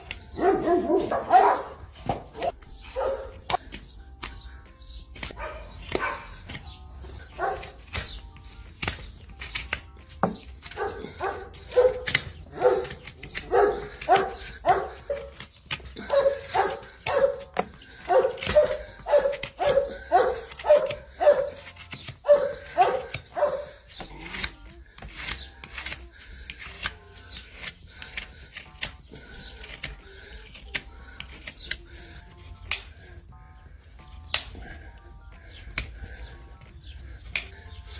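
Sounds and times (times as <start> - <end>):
dog barking: 0.4 - 1.8, 2.4 - 3.3, 5.4 - 6.3, 10.8 - 15.2, 16.0 - 17.4, 18.1 - 21.6, 22.2 - 23.7.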